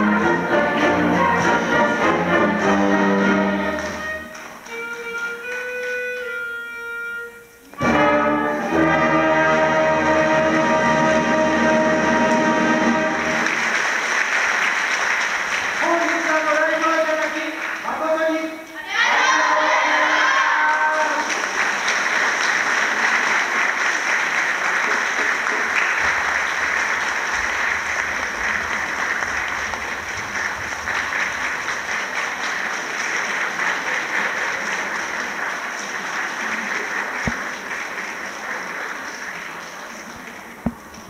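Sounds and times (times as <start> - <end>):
audience applauding: 0.0 - 6.4, 7.7 - 41.0.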